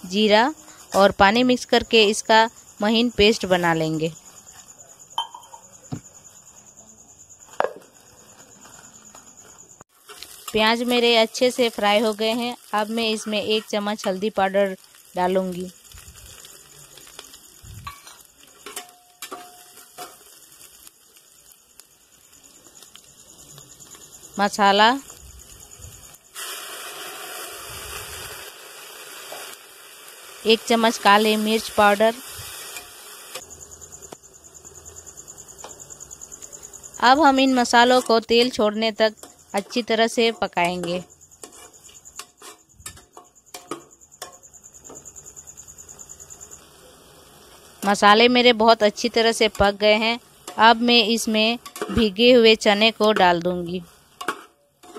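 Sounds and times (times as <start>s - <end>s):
cricket chirping: 0.0s - 54.9s
onions sizzling in oil: 0.0s - 54.9s
spatula scraping metal pot: 41.4s - 42.7s
metal spatula scraping a pot: 41.4s - 44.4s, 54.2s - 54.9s.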